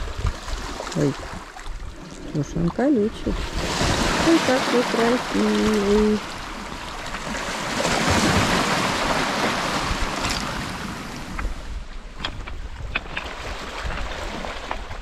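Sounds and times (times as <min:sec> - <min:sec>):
small waves washing over pebbles: 0:00.0 - 0:11.7.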